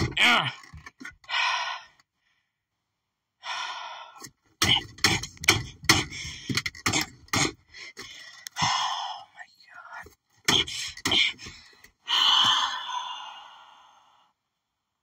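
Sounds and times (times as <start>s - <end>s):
person huffing breaths: 7.7s - 9.4s, 11.4s - 14.3s.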